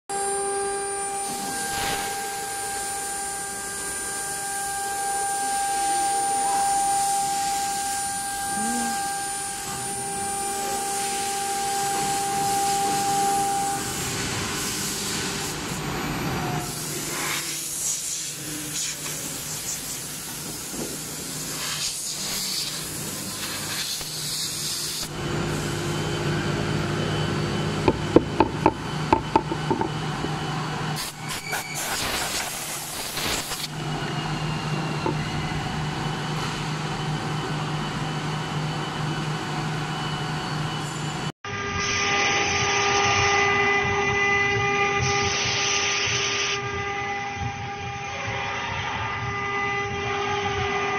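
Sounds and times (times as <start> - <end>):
router spindle cutting wood: 0.2 - 14.4.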